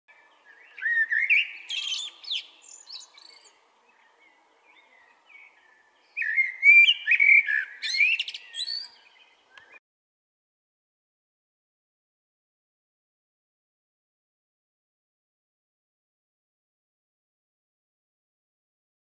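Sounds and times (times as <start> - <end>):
blackbird singing: 0.1 - 9.8.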